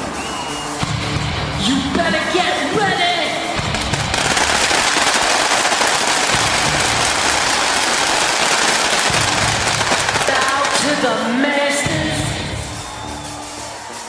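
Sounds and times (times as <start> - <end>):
rifles firing together: 3.6 - 11.1.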